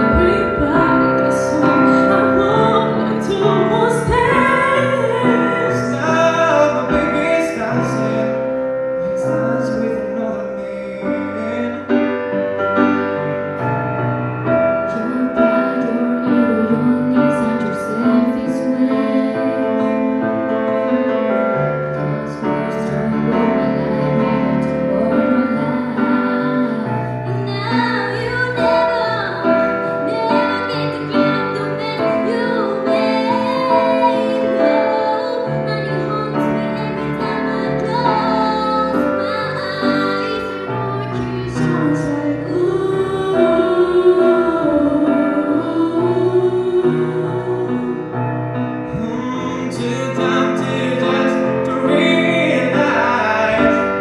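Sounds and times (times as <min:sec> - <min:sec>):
women singing: 0:00.0 - 0:08.5, 0:14.7 - 0:20.3, 0:22.0 - 0:48.2
grand piano chords: 0:00.0 - 0:54.0.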